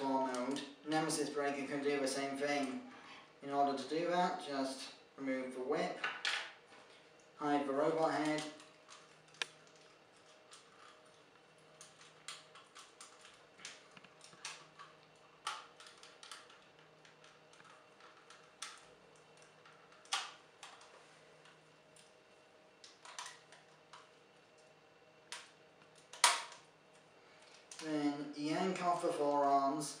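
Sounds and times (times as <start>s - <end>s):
plastic toy clicks and snaps: 26.1s - 26.6s.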